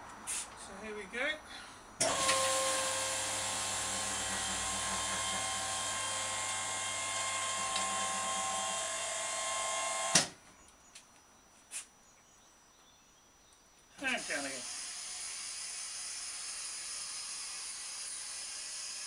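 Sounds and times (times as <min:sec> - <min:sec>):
hoist stopping clunk: 0:02.0 - 0:02.6
hoist motor whining: 0:02.0 - 0:10.3.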